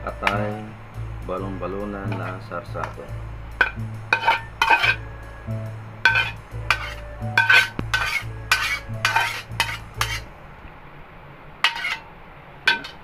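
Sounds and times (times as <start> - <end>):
spatula scraping metal pan: 2.1 - 3.0, 3.6 - 5.1, 6.0 - 10.3, 11.6 - 12.1, 12.7 - 13.0.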